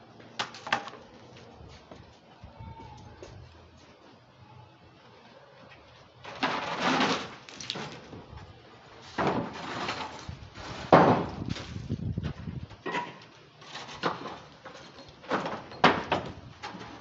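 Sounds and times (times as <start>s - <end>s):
wooden planks scraping on metal: 6.2s - 8.1s, 9.0s - 12.0s, 12.9s - 15.7s.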